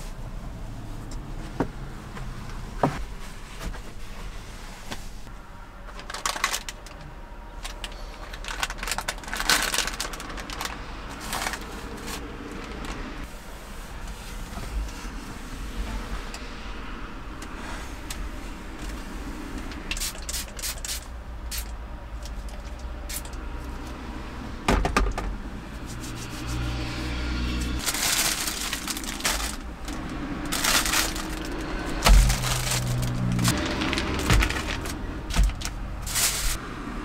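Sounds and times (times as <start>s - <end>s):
plastic bags crinkling: 5.9s - 7.0s, 7.6s - 13.0s, 27.8s - 36.6s.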